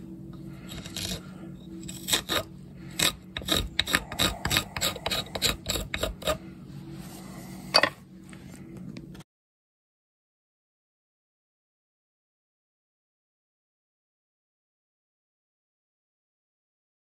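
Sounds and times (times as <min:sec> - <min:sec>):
faint steady hum: 0:00.0 - 0:09.2
hook knife scraping wood: 0:00.6 - 0:06.4.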